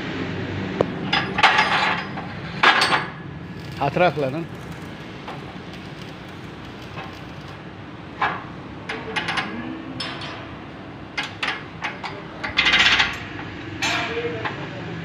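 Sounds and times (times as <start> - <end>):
metal linkage clanking: 8.2 - 14.3.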